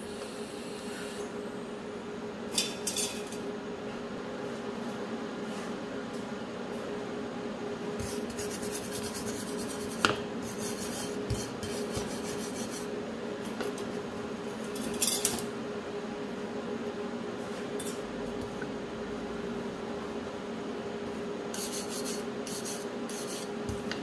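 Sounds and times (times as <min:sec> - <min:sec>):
wire brush scrubbing metal: 0:21.6 - 0:23.5.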